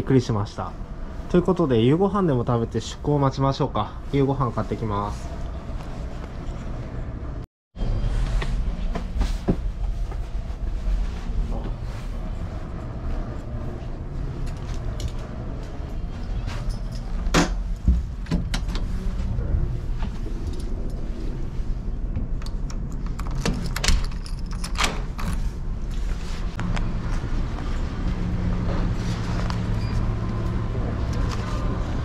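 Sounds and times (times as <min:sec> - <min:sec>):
ship machinery hum: 0:00.1 - 0:32.0
door opening and shutting: 0:16.3 - 0:19.2, 0:22.1 - 0:25.6.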